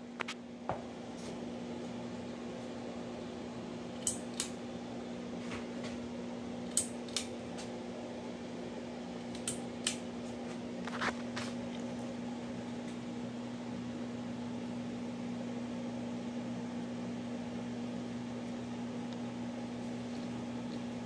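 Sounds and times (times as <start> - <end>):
ceiling fan motor hum: 0.0 - 21.0
light clicks from fan: 6.7 - 7.7, 9.3 - 10.1.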